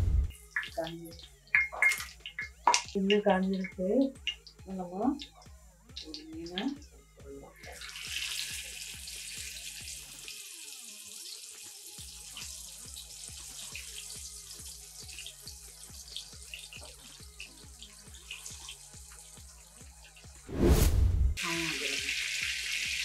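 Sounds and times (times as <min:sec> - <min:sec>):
background music with beat: 0:00.0 - 0:10.3, 0:12.0 - 0:20.5
fish sizzling in hot oil: 0:07.7 - 0:20.4, 0:21.4 - 0:23.0.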